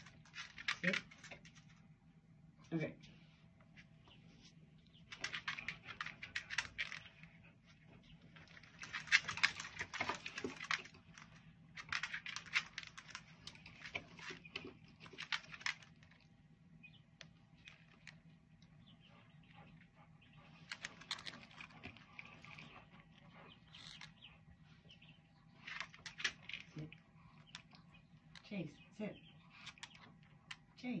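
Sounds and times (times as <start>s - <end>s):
dog claws clicking on floor: 5.1s - 7.3s, 8.4s - 16.2s.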